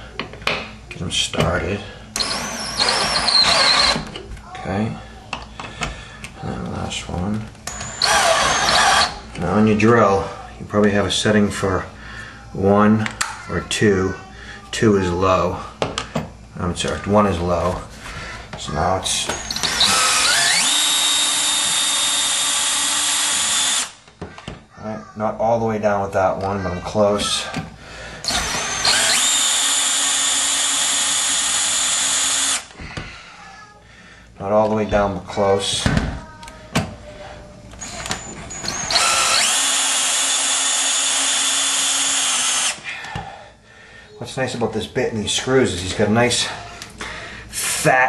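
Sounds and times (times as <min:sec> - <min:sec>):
cordless drill motor whine: 0:02.2 - 0:04.1, 0:07.6 - 0:09.2, 0:19.3 - 0:24.0, 0:28.2 - 0:32.7, 0:37.8 - 0:42.8.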